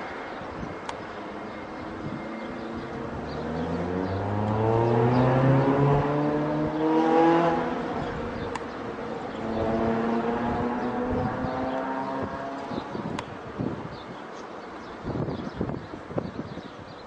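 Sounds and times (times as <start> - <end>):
vehicle engine accelerating: 1.8 - 13.2.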